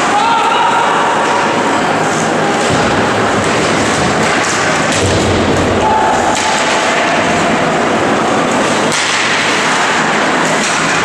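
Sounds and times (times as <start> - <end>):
arena noise: 0.0 - 11.0
sharp crack: 2.6 - 7.7, 8.9 - 11.0.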